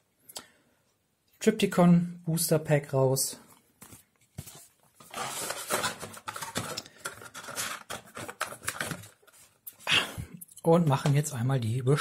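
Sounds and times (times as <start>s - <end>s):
cardboard rustling and scraping: 3.8s - 9.6s.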